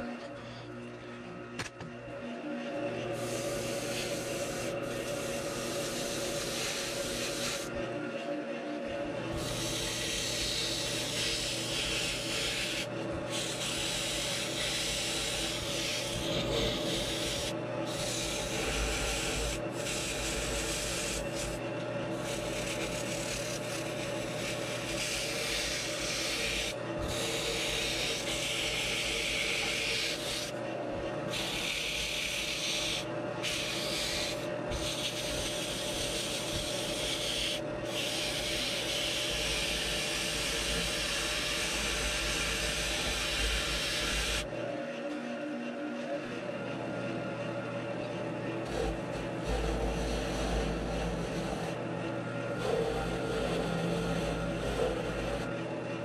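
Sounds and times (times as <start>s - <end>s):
lathe motor hum: 0.0s - 56.0s
sandpaper sanding hiss: 31.4s - 44.4s.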